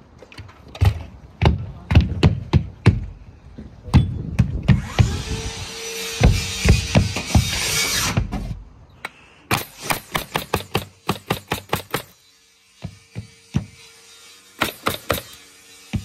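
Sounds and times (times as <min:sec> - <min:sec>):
power tool running: 0:04.8 - 0:08.2.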